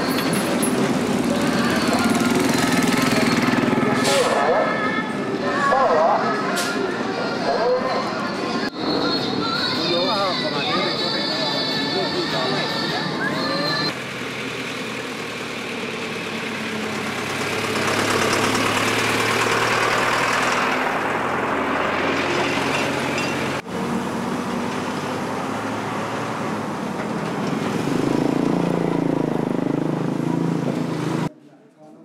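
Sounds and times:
truck engine humming: 0.0 - 31.3
road and wind noise: 13.4 - 31.3.

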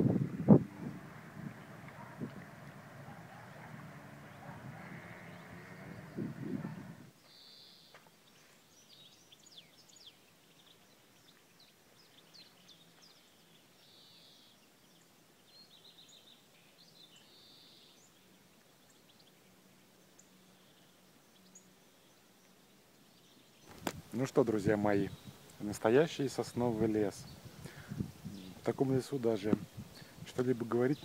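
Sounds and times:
low rumble: 0.0 - 7.1
songbirds singing faintly: 0.0 - 31.0.

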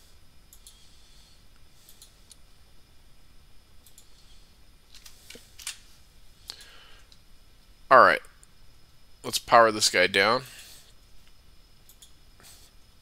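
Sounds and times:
computer mouse clicks: 0.5 - 0.8, 1.8 - 2.4, 3.8 - 4.3, 11.8 - 12.2.

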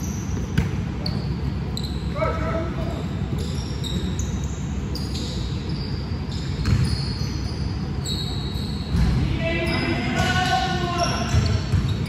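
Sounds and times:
sneakers squeaking on floor: 0.0 - 12.0
basketball bouncing: 0.4 - 0.8, 6.6 - 7.0, 11.2 - 12.0.

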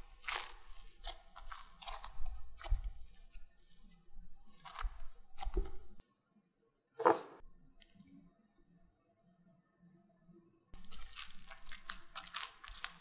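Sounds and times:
dough squelching and tearing: 0.0 - 6.0, 10.8 - 13.0.

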